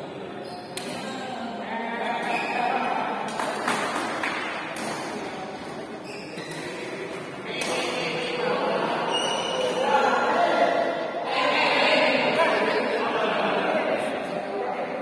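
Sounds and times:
voices chattering in echoing hall: 0:00.0 - 0:15.0.

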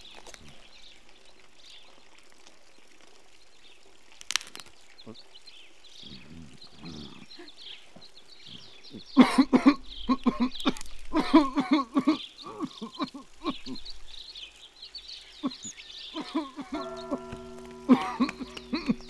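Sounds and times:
small birds chirping: 0:00.0 - 0:19.0
old man coughing: 0:09.2 - 0:13.8, 0:15.4 - 0:17.3, 0:17.9 - 0:19.0.

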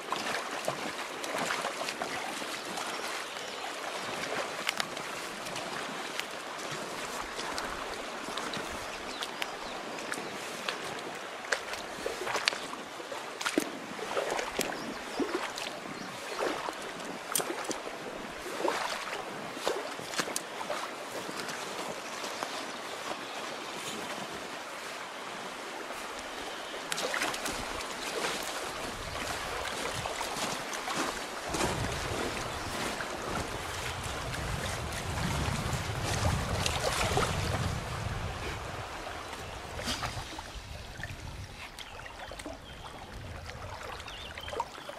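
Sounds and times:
short splashes and knocks: 0:00.1 - 0:03.2, 0:11.5 - 0:12.7, 0:13.4 - 0:22.6, 0:26.8 - 0:37.8, 0:39.3 - 0:42.6
fast-flowing river rushing: 0:16.3 - 0:40.6
wind buffeting microphone: 0:31.4 - 0:44.3.

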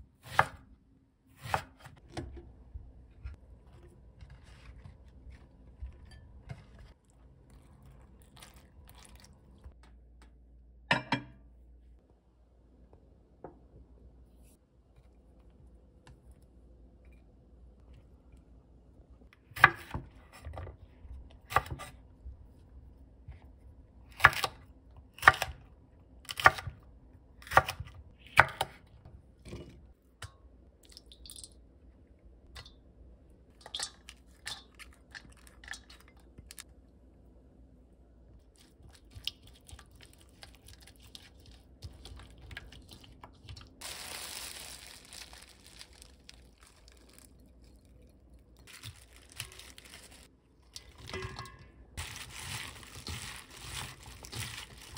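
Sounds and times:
rustling: 0:43.8 - 0:47.8, 0:48.6 - 0:51.1, 0:52.0 - 0:54.9.

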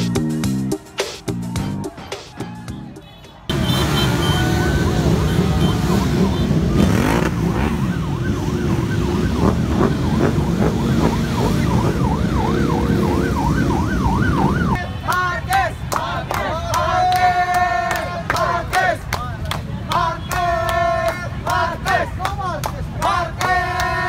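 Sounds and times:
motorcycles revving past: 0:03.5 - 0:12.2
siren yelping: 0:04.0 - 0:14.8.

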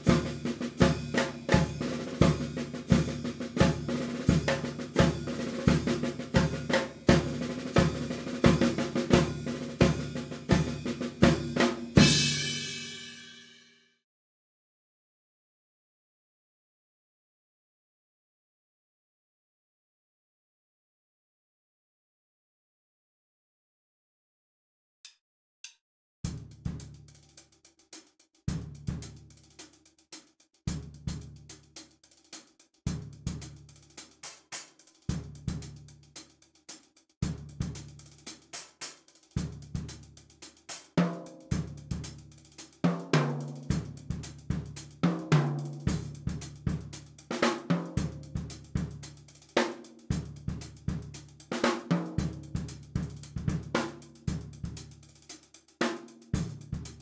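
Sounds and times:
drum kit groove: 0:00.0 - 0:13.5, 0:26.2 - 0:57.0.

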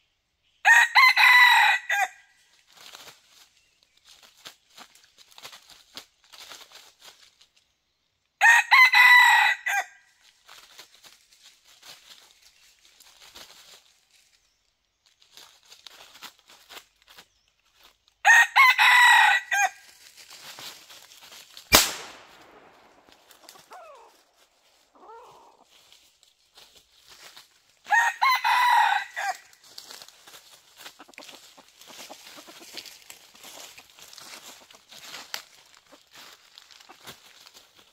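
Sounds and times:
rooster crowing: 0:00.6 - 0:02.2, 0:08.4 - 0:10.0, 0:18.2 - 0:19.8, 0:27.9 - 0:29.5
rustling in dry leaves: 0:00.7 - 0:37.9.

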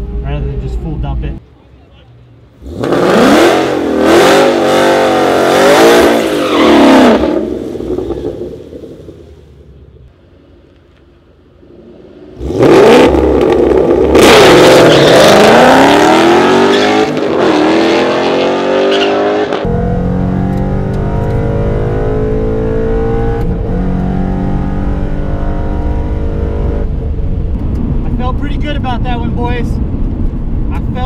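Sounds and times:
car engine accelerating hard: 0:02.6 - 0:09.2, 0:11.7 - 0:28.3
engine drone inside car cabin: 0:19.6 - 0:28.0.

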